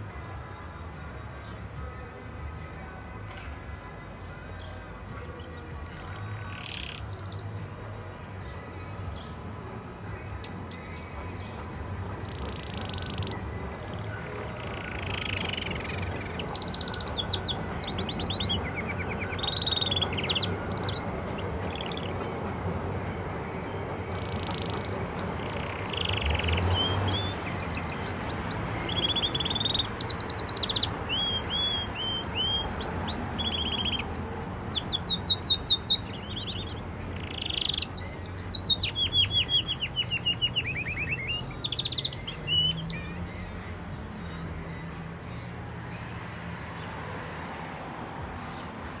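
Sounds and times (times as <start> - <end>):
canary singing chirps and trills: 0.0 - 47.5.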